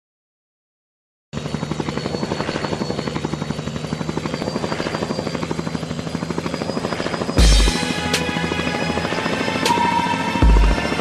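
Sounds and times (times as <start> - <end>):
engine hum: 1.4 - 11.0
helicopter rotor beat: 1.4 - 11.0
thin high whine: 1.5 - 11.0.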